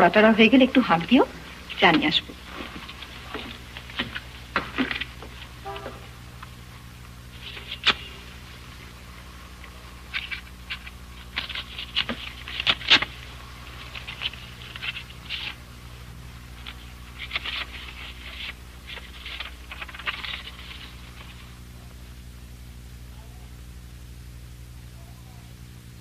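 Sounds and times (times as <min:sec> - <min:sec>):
steady low hum: 0:00.0 - 0:26.0
paper rustling: 0:01.6 - 0:06.1, 0:07.3 - 0:21.6
paper envelope tearing: 0:10.0 - 0:15.6, 0:16.5 - 0:21.5.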